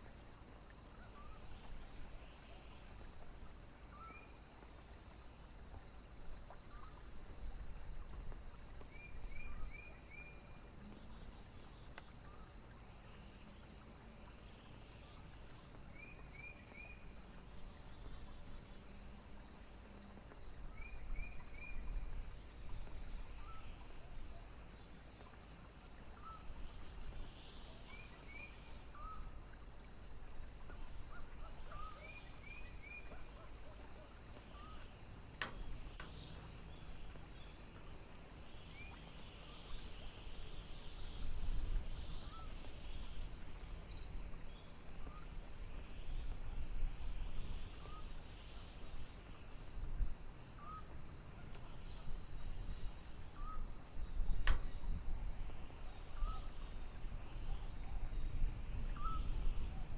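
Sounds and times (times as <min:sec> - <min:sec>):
cricket chirping: 0:00.0 - 0:59.9
wind rumbling on microphone: 0:19.8 - 0:24.4, 0:39.7 - 0:59.9.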